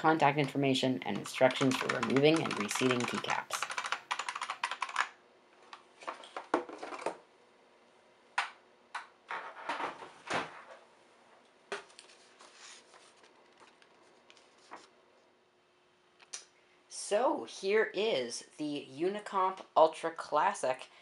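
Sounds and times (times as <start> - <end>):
paper rustling: 11.8 - 14.9.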